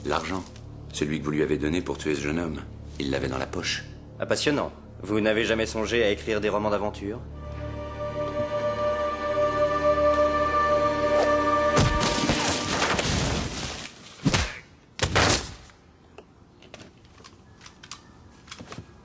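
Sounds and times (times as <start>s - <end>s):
background film music: 0.0s - 13.6s.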